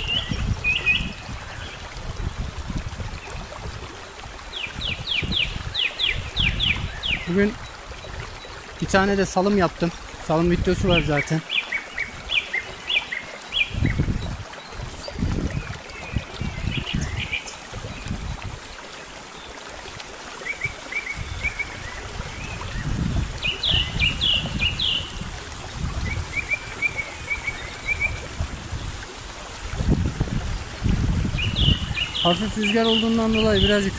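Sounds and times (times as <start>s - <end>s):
wind rumbling on microphone: 0.0s - 19.0s, 19.8s - 33.9s
mountain stream running: 0.0s - 33.9s
songbirds chirping: 4.3s - 25.4s, 30.4s - 33.9s.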